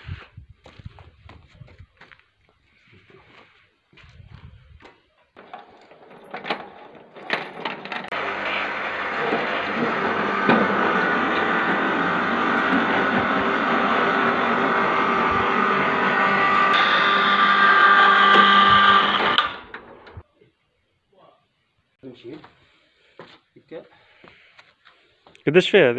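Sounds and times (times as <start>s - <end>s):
electric hoist motor whining: 5.4s - 20.2s.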